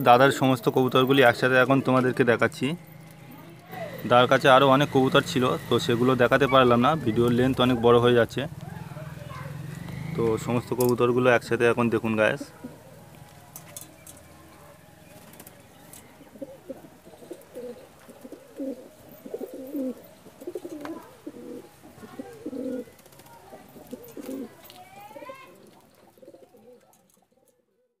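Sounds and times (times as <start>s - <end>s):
pigeons cooing: 3.7s - 10.9s, 11.8s - 14.2s, 15.0s - 27.5s.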